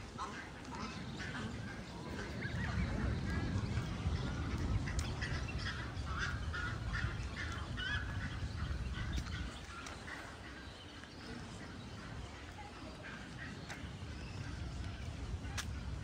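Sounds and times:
low rumble: 0.0 - 10.1
waterfowl honking and quacking: 0.0 - 15.7.

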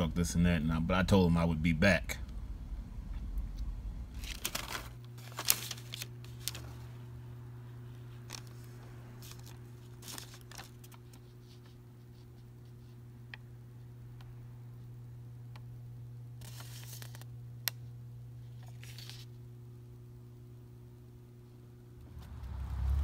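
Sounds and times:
steady low hum: 0.0 - 23.0
paper receipt rustling: 4.1 - 13.0, 16.4 - 19.4.

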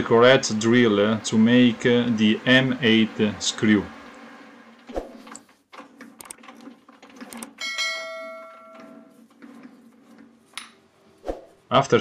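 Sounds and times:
short clicks: 6.2 - 6.4
bell chime: 7.6 - 8.8.

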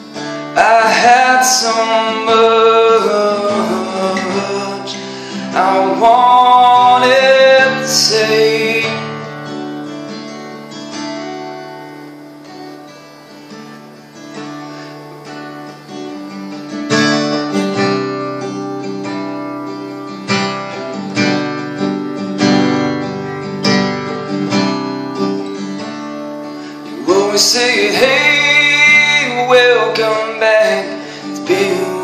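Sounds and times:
acoustic guitar chords: 0.0 - 32.0.

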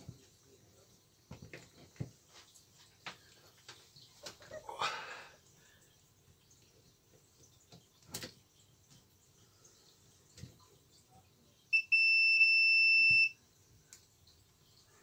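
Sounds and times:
multimeter continuity beeping: 11.7 - 13.4.

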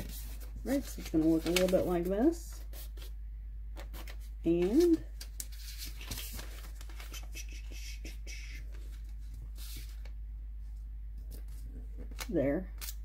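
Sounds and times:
paper being folded and creased: 0.0 - 2.1, 3.8 - 10.1
steady low hum: 0.0 - 13.0.

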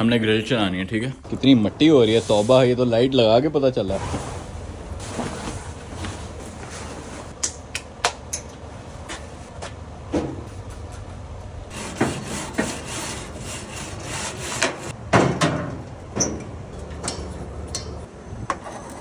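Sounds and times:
grill brush scrubbing grates: 11.7 - 14.9.

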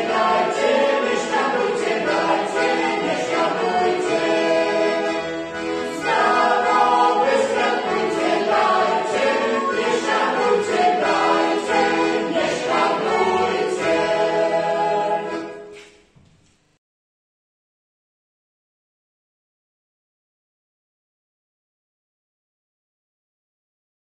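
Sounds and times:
mixed choir singing: 0.0 - 15.8
button accordion: 0.0 - 16.0.

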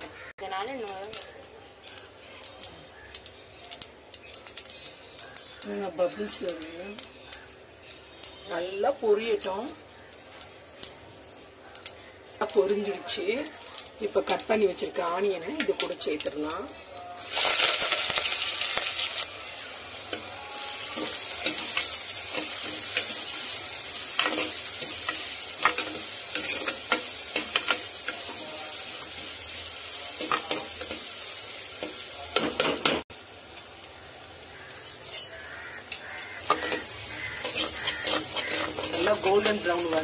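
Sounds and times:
vegetables sizzling in hot oil: 0.1 - 40.0
spatula scraping a clay pot: 36.5 - 39.3.

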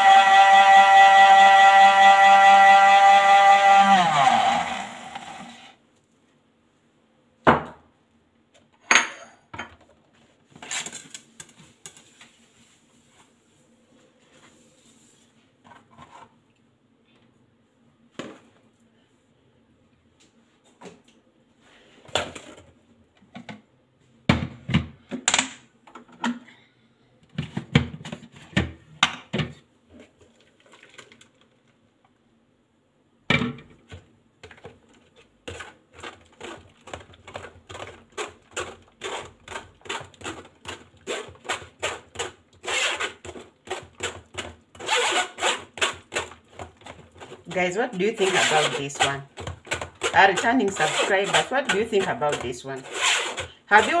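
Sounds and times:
kitchen things knocking and clattering: 8.8 - 10.1.

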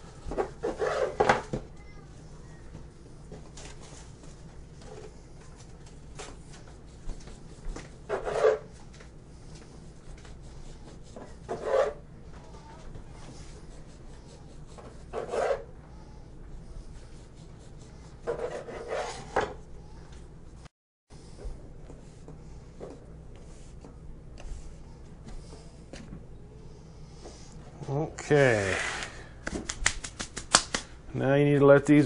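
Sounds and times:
knife sawing through dough: 0.6 - 1.2, 8.0 - 8.7, 10.2 - 12.0, 13.6 - 15.7, 17.2 - 19.4.

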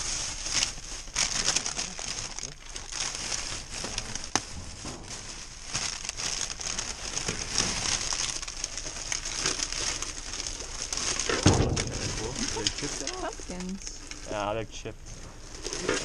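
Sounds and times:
plastic bags crinkling and rustling: 0.0 - 16.0
loud thump: 11.4 - 12.2.

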